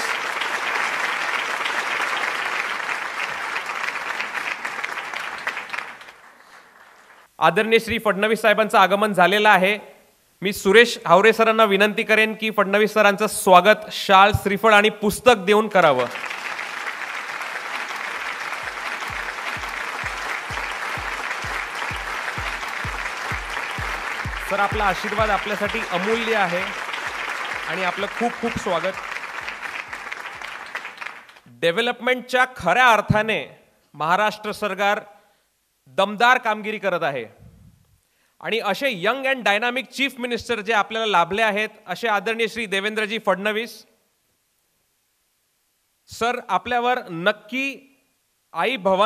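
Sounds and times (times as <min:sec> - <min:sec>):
audience applauding: 0:00.0 - 0:07.3, 0:15.9 - 0:31.5
music with bass-drum beat: 0:19.1 - 0:26.3.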